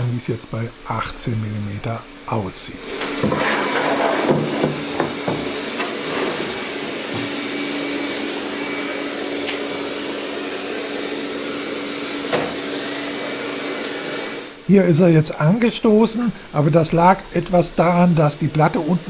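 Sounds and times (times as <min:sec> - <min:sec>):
robot vacuum whirring: 0:02.9 - 0:14.6
wooden knocks: 0:04.2 - 0:05.6.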